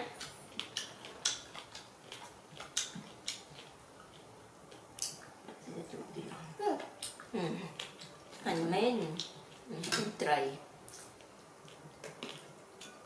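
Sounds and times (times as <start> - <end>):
monkey chewing clicks and smacks: 0.2 - 5.6.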